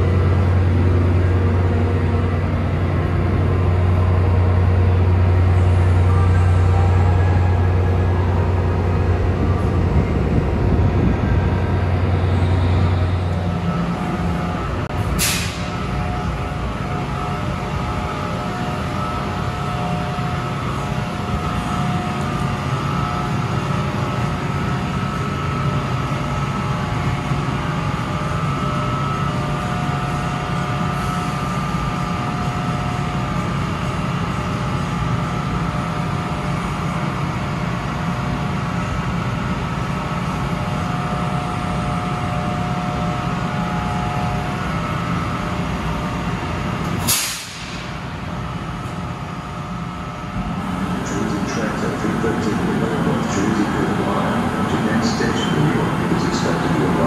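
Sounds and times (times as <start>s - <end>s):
electric locomotive humming: 0.0s - 57.0s
sharp burst of air: 47.0s - 47.8s.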